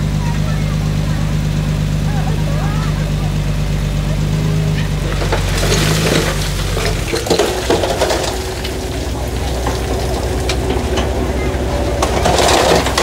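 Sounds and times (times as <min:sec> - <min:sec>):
diesel engine running low: 0:00.0 - 0:13.0
crackling crunching noise: 0:04.7 - 0:13.0.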